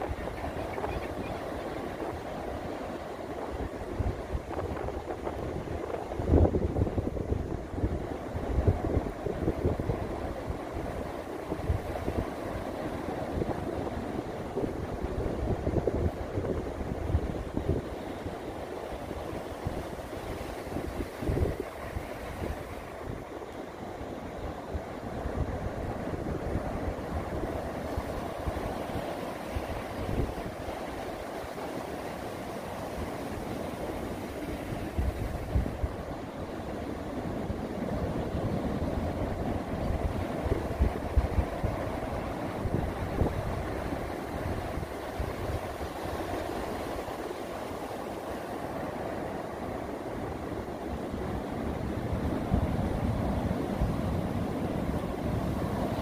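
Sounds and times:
ocean surf washing onto beach: 0.0s - 56.0s
wind buffeting microphone: 3.3s - 23.3s, 24.3s - 31.4s, 32.8s - 47.3s.

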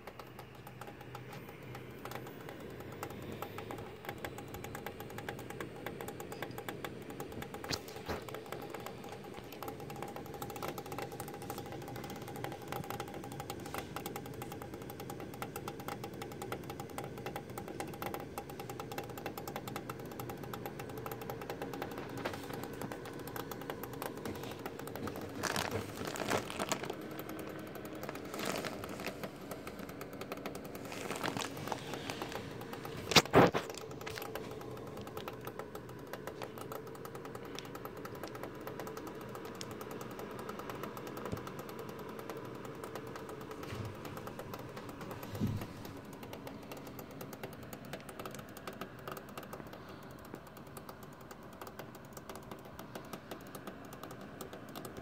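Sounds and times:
steady electrical hum: 0.0s - 55.0s
power supply cracking and knocking: 19.9s - 40.1s.

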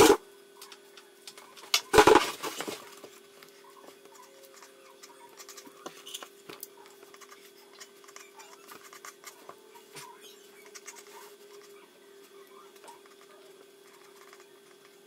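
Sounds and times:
steady hum: 0.0s - 15.0s
pencil scratching on paper: 6.9s - 9.5s, 10.4s - 11.8s, 12.8s - 15.0s.

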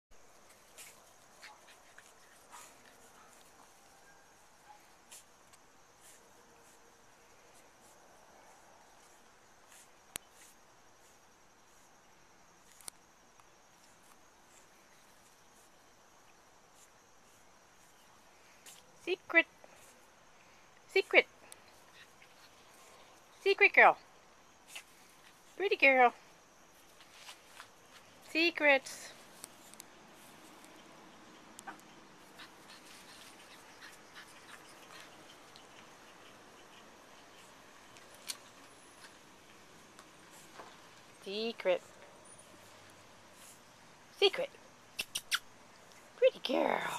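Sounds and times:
insects chirping: 0.1s - 46.9s
dog sniffing: 24.6s - 25.6s, 29.3s - 38.4s
rustling in grass: 26.7s - 28.4s
sharp click: 45.0s - 45.5s.

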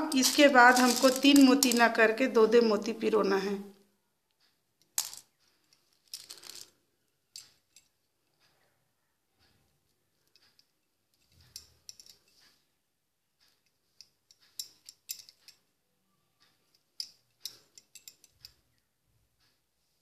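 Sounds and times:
beads clicking in steel bowl: 0.0s - 2.3s, 4.8s - 7.9s, 16.7s - 18.7s.

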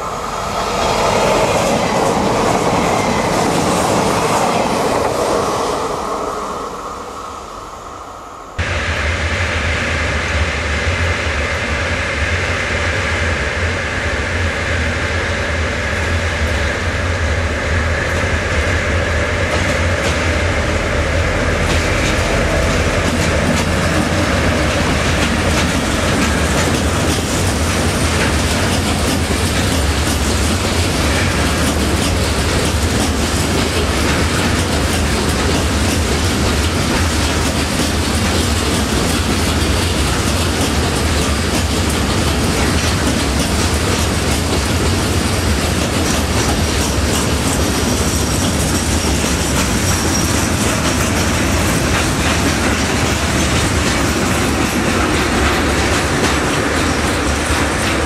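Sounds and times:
freight train wheels rumbling: 0.0s - 58.0s
wheels clattering over rail joints: 21.6s - 58.0s.

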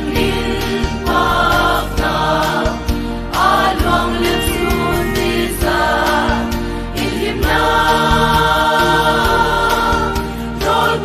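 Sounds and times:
choir accompaniment: 0.0s - 11.0s
church choir singing: 0.0s - 11.0s.

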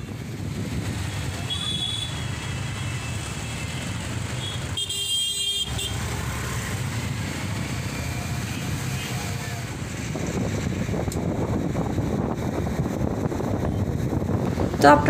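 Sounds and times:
vehicle engine and road rumble: 0.0s - 15.0s
vehicle horn honking: 1.4s - 3.2s, 4.4s - 6.0s.

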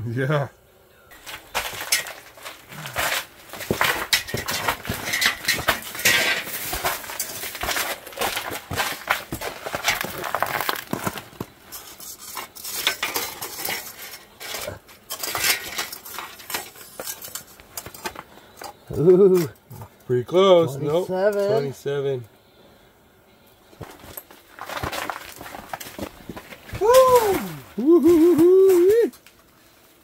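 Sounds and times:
handling rustling and scraping: 1.1s - 18.8s, 23.4s - 30.0s.

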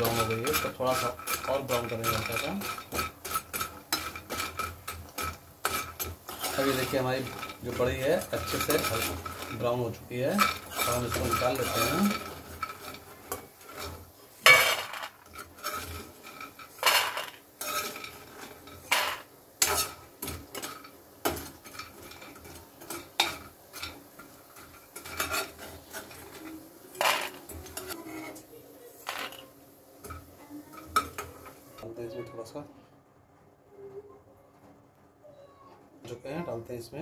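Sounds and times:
steel spoon scraping metal pan: 0.0s - 28.4s.

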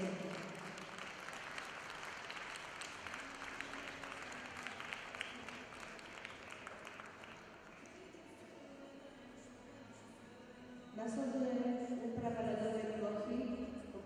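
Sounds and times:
audience applauding: 0.0s - 8.1s.

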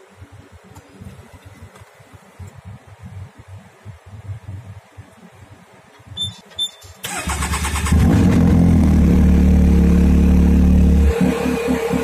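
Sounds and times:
short electronic beeps: 6.1s - 7.0s
engine starter cranking: 6.9s - 8.6s.

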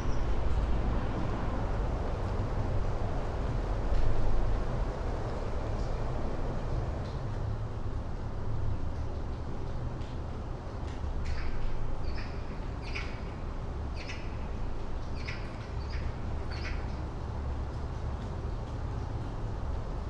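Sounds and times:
distant city traffic rumble: 0.0s - 20.0s
bird chirping: 11.3s - 13.4s, 14.0s - 14.5s, 15.1s - 17.0s.

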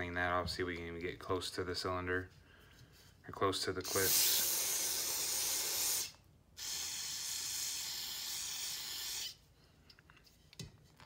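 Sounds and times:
aerosol spray hissing: 3.8s - 9.4s.

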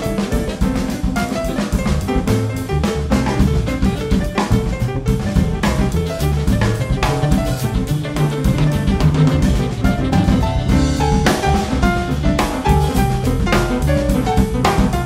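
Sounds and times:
bass line: 0.0s - 15.0s
drum kit playing: 0.0s - 15.0s
piano: 0.0s - 15.0s
alto saxophone: 5.4s - 15.0s.

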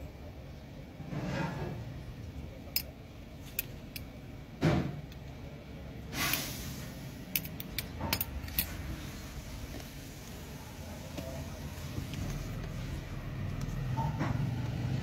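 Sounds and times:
metal belt buckle clicking: 3.5s - 4.1s, 7.3s - 8.7s.

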